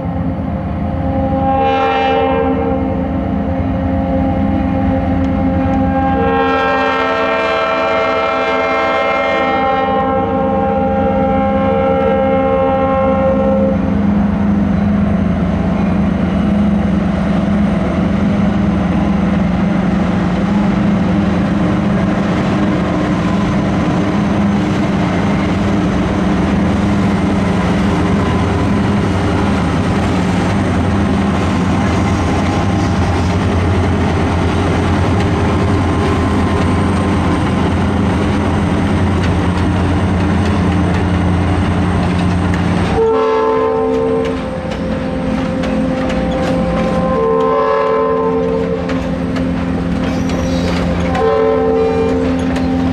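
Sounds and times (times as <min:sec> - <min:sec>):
diesel locomotive running: 0:00.0 - 0:52.9
train rolling on rails: 0:00.0 - 0:52.9
locomotive air horn chord: 0:01.0 - 0:13.9, 0:42.9 - 0:49.3, 0:50.4 - 0:52.4.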